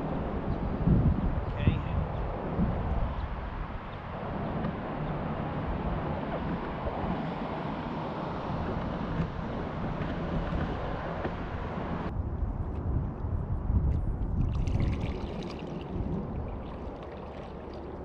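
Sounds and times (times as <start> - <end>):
wind rumbling on microphone: 0.0 - 18.0
kayak paddle sloshing water: 14.4 - 18.0.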